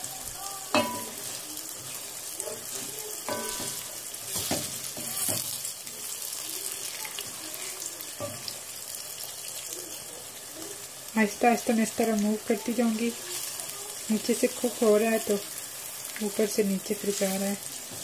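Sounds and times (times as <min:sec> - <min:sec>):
eggs sizzling in hot oil: 0:00.0 - 0:18.0
spoon knocking against pot: 0:00.7 - 0:01.2, 0:03.3 - 0:05.4.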